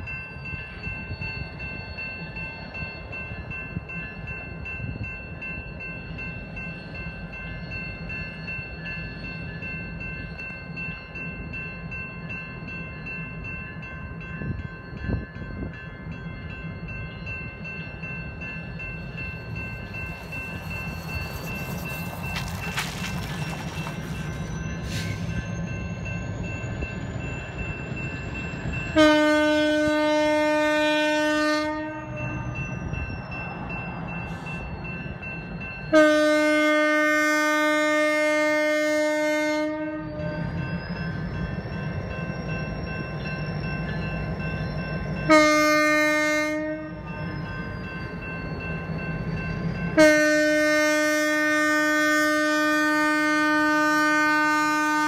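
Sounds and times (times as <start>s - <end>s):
locomotive air horn blasts: 29.0s - 32.5s, 35.9s - 40.4s, 45.3s - 47.0s, 50.0s - 55.0s.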